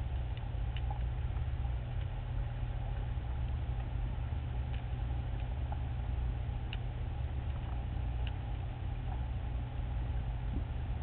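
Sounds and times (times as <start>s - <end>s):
faint clicks: 0.0s - 6.0s, 6.6s - 9.4s
underwater low rumble: 0.0s - 11.0s.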